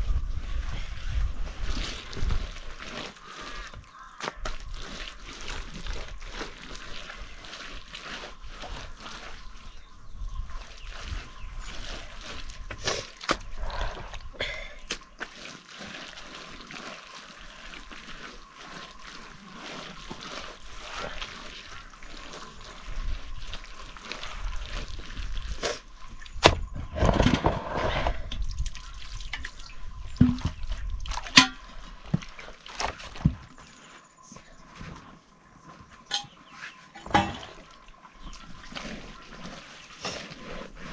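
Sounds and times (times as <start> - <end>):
hand smearing wet mud plaster: 0.1 - 26.2, 37.5 - 40.9.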